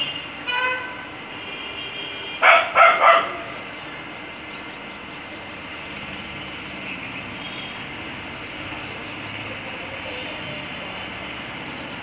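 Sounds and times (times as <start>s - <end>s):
dog barking angrily: 2.4s - 3.5s.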